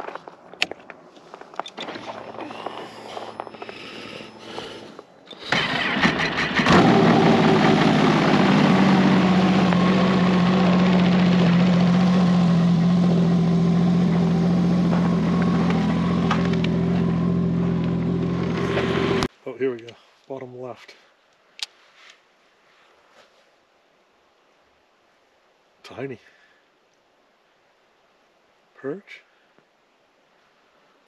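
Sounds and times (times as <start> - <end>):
snowmobile engine idling: 2.0 - 19.3
snowmobile starter cranking: 4.4 - 8.7.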